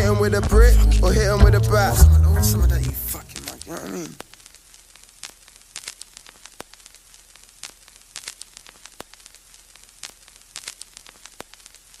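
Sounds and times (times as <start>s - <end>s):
steady hiss: 1.6s - 12.0s
crackling clicks and pops: 2.9s - 12.0s.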